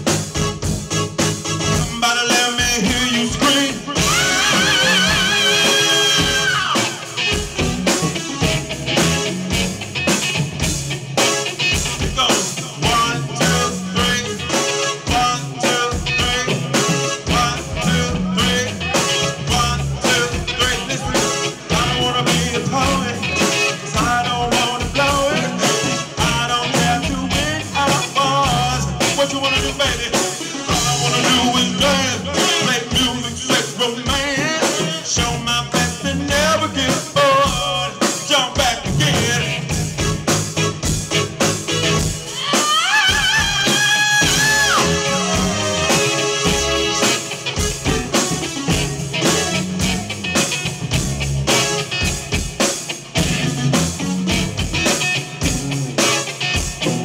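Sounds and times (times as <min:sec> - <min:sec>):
electric bass: 0:00.0 - 0:38.0, 0:38.6 - 0:42.4, 0:43.2 - 0:57.0
drum kit: 0:00.0 - 0:57.0
electric guitar: 0:00.0 - 0:57.0
person singing: 0:01.6 - 0:09.1, 0:11.7 - 0:40.3, 0:42.3 - 0:50.0.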